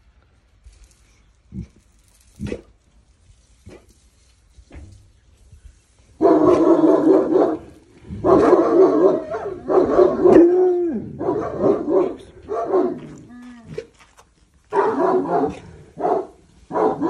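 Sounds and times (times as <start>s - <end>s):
dog barking: 6.2s - 10.5s, 11.1s - 13.2s, 14.7s - 17.0s.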